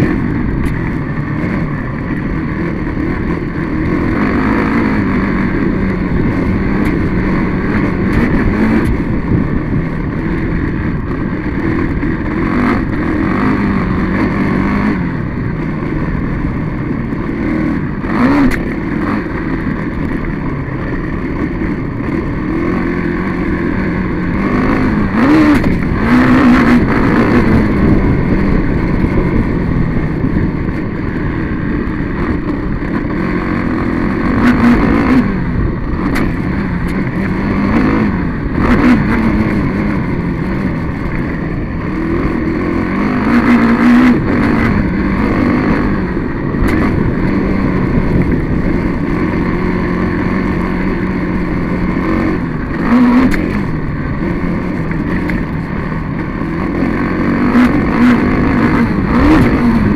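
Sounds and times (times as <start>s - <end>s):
ground noise: 0.0s - 59.9s
vehicle engine revving: 0.0s - 59.9s
wind rumble: 0.0s - 59.9s.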